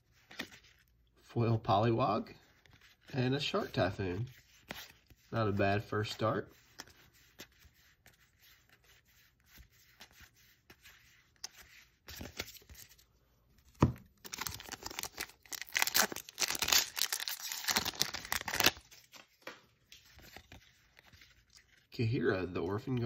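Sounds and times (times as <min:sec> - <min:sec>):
foil wrapper crinkling and tearing: 0:14.2 - 0:19.2.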